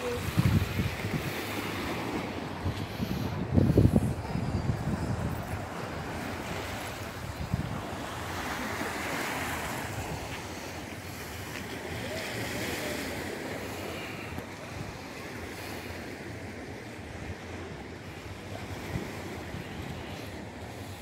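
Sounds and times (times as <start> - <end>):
wind buffeting microphone: 0.0 - 12.0
waves washing against seawall: 0.0 - 21.0.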